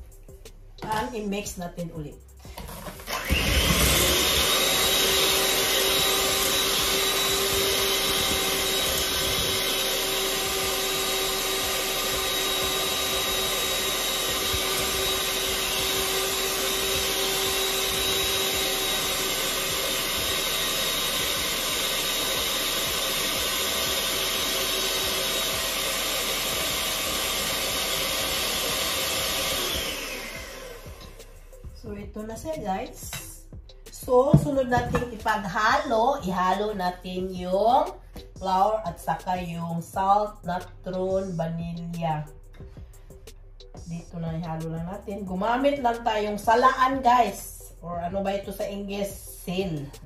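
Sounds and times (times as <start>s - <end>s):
electric hand mixer whining: 2.4s - 31.7s, 34.1s - 36.7s.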